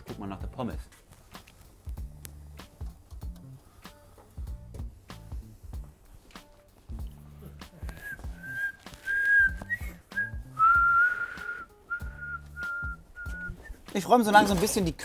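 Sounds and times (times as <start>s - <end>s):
man whistling a tune: 7.8s - 13.9s.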